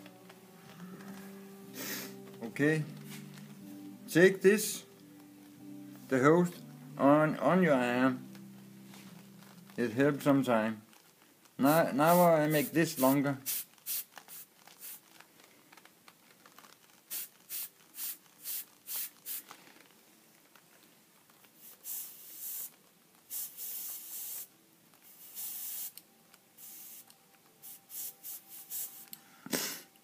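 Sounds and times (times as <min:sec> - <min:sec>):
airbrush spraying hiss: 0:12.0 - 0:15.0, 0:17.1 - 0:19.5, 0:21.6 - 0:26.0, 0:26.6 - 0:29.9.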